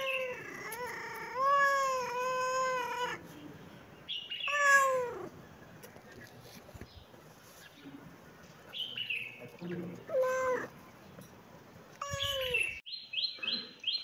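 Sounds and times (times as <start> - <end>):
cat meowing: 0.0 - 3.2, 4.4 - 5.3, 10.1 - 10.8, 12.0 - 12.7.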